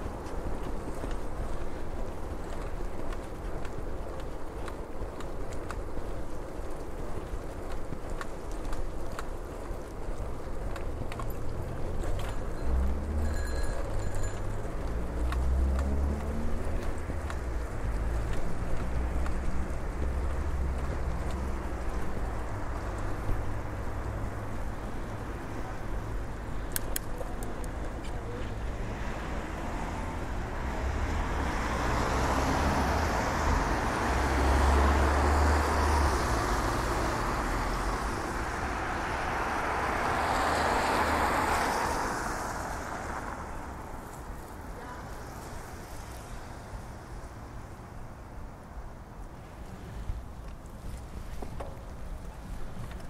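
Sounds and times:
tyres hissing on wet road: 28.5 - 47.7, 49.4 - 51.4.

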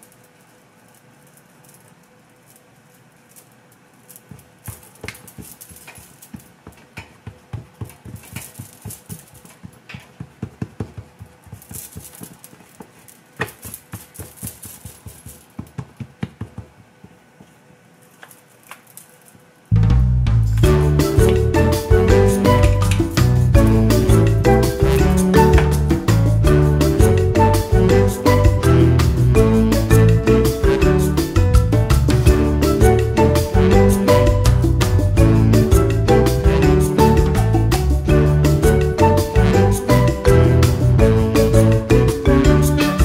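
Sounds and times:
fingertips patting dough: 4.2 - 17.7.

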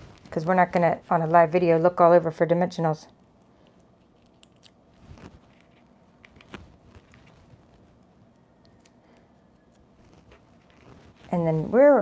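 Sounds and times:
paper rustling: 4.2 - 8.0, 10.0 - 11.8.

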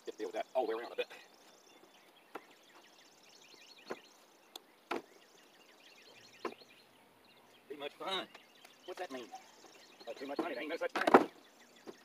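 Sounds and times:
faint birds chirping: 0.0 - 12.0
sharp knocks and clicks on siding: 2.3 - 2.8, 3.8 - 5.2, 6.4 - 6.7, 10.3 - 12.0.

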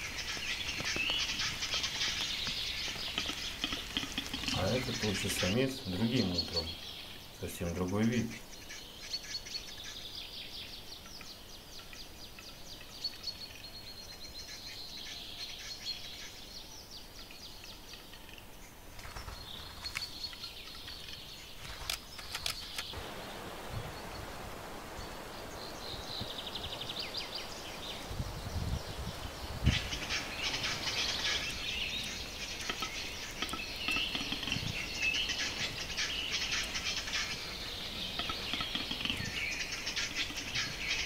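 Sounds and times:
bird rapid scraping ticks: 0.0 - 5.7, 19.0 - 23.0, 29.7 - 41.0
sharp clicks: 21.6 - 23.0.

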